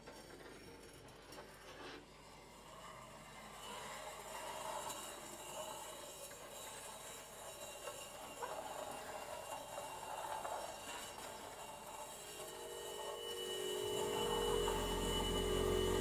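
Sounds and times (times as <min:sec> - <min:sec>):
faint steady high tones ringing: 0:11.8 - 0:16.0.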